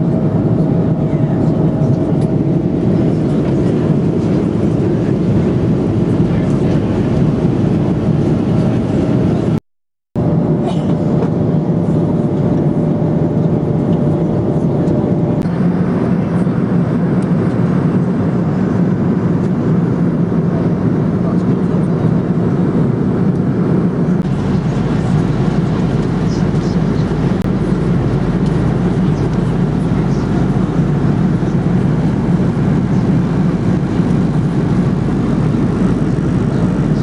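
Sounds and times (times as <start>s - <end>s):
aircraft cabin roar: 0.0s - 9.6s, 10.2s - 37.0s
faint steady whine: 22.7s - 37.0s.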